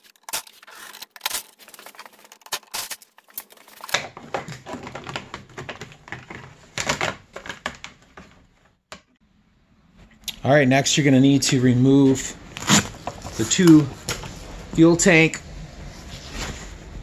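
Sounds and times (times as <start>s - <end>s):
plastic panel scraping and knocking: 3.8s - 8.6s, 12.6s - 14.8s.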